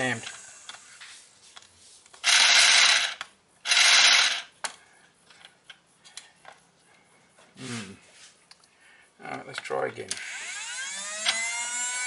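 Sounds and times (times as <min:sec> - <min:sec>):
small electric motor with rattling gears: 0:00.0 - 0:01.0, 0:02.2 - 0:04.5, 0:10.1 - 0:12.0.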